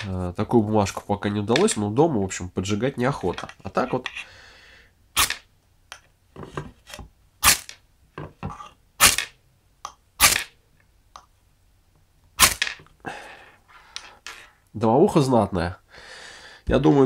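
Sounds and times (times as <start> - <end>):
ferrocerium rod scraped by striker: 12.4 - 12.8.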